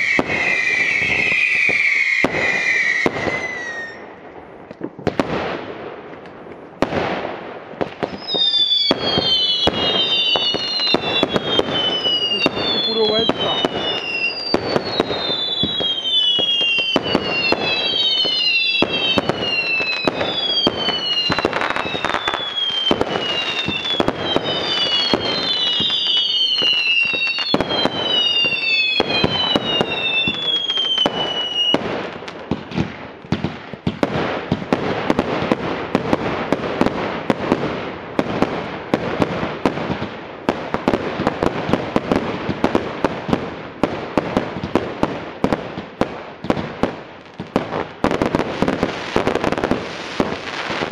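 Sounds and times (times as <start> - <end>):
fireworks whistles falling in pitch: 0.0 - 4.1, 8.0 - 32.9
fireworks crackling pops and bangs: 0.0 - 50.9.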